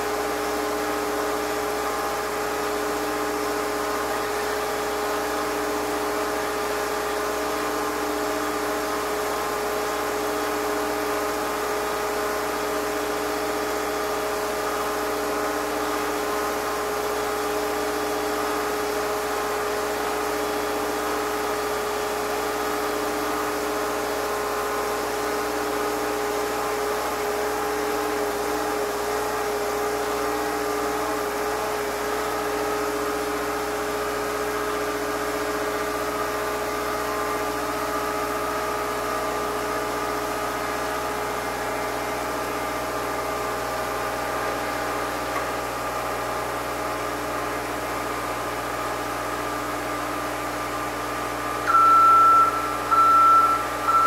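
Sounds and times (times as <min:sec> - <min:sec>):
machine humming drone: 0:51.6 - 0:54.0.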